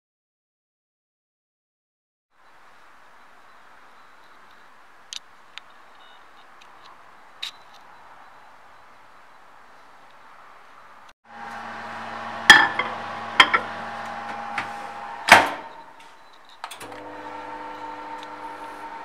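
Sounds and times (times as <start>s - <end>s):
microwave oven humming: 11.3s - 19.0s
microwave door shutting: 12.5s - 15.8s, 16.6s - 19.0s.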